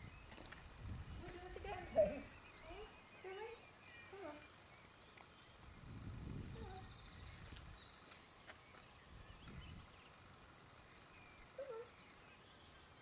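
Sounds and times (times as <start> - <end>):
faint bird chirps: 1.9 - 10.1, 10.8 - 13.0.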